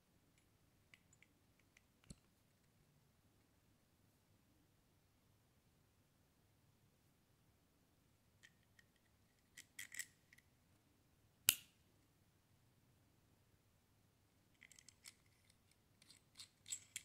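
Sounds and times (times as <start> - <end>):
small metal parts clicking: 9.6 - 10.1, 14.6 - 17.0.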